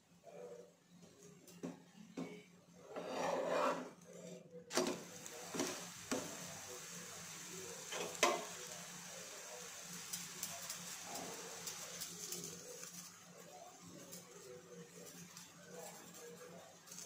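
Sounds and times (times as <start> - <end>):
metal spatula scraping pan: 2.8 - 4.3
oil sizzling: 4.7 - 17.0
metal tapping on pan: 7.9 - 8.5.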